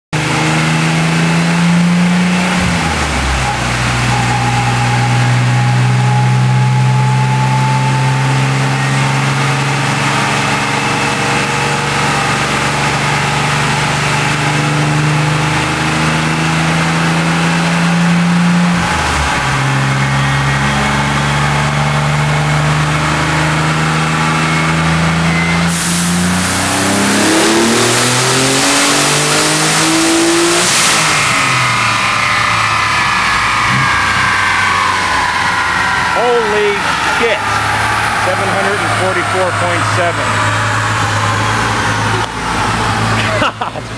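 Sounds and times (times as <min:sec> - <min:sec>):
car engine revving on dyno: 0:00.2 - 0:43.9.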